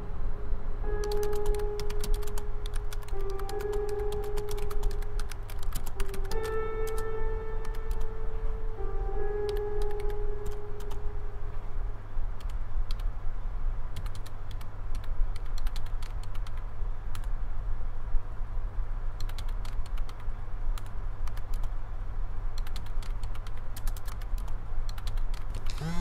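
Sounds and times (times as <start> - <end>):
held musical tone: 0.0 - 12.2
steady low hum: 0.0 - 26.0
computer keyboard typing: 1.0 - 8.1, 9.4 - 11.0, 12.4 - 13.1, 14.0 - 17.3, 19.2 - 21.7, 22.6 - 25.8.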